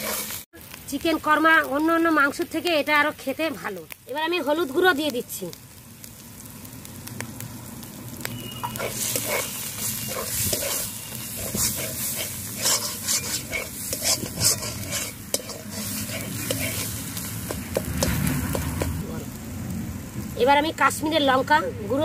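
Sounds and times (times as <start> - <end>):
metal spatula scraping a pan: 0.0 - 0.4, 8.6 - 18.8
paste sizzling in hot oil: 0.0 - 21.4.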